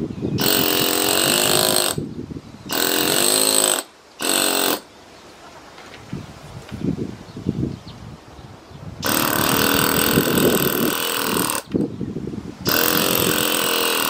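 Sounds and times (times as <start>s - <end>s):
air hammer cutting stone: 0.4s - 2.0s, 2.7s - 4.8s, 9.0s - 11.8s, 12.6s - 14.0s.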